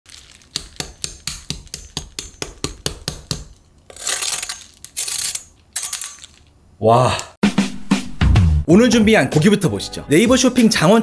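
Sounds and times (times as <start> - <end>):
crackling crunching: 0.1 - 1.5.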